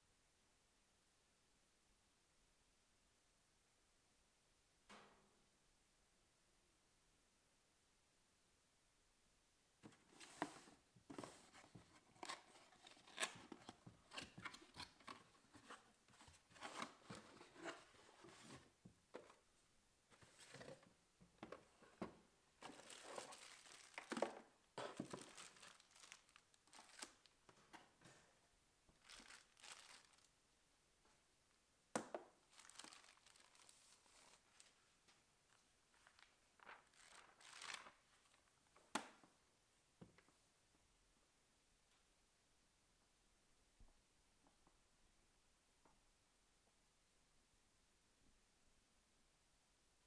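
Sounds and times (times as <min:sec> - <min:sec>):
cardboard and plastic packaging rustling: 0:09.8 - 0:19.4, 0:20.1 - 0:28.2, 0:28.9 - 0:30.3, 0:32.4 - 0:34.9, 0:35.9 - 0:38.4.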